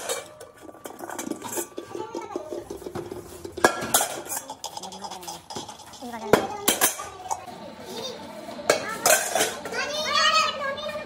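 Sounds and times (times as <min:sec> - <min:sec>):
metal caps clinking and scraping: 0:00.0 - 0:07.5, 0:09.0 - 0:09.7.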